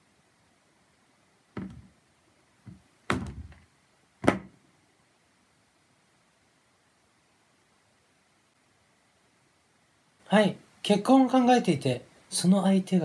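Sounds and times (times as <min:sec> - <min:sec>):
dull thumps on hard surface: 0:01.6 - 0:01.9, 0:02.7 - 0:03.6, 0:04.2 - 0:04.6.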